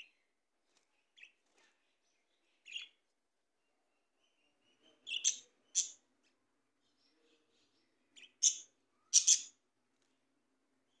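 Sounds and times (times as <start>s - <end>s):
budgerigars chirping: 5.1s - 6.0s, 8.2s - 9.6s.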